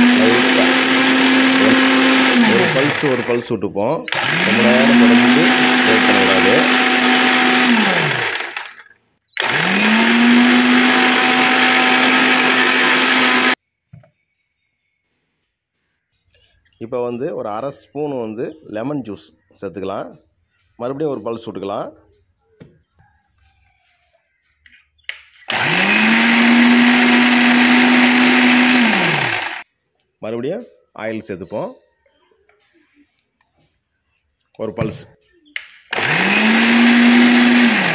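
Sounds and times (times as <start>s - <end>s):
electric mixer grinder motor: 0.0s - 3.5s, 4.1s - 13.6s, 25.5s - 29.6s, 35.9s - 37.9s.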